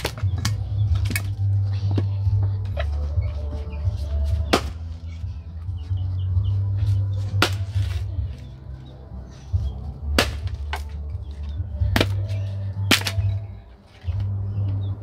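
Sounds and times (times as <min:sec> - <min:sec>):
axe chopping log: 0:00.0 - 0:02.1, 0:04.2 - 0:05.0, 0:06.9 - 0:08.1, 0:10.0 - 0:13.5.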